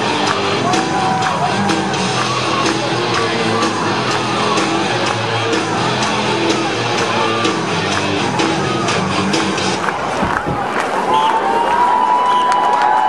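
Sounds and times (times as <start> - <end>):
steady drum beat: 0.0 - 9.9.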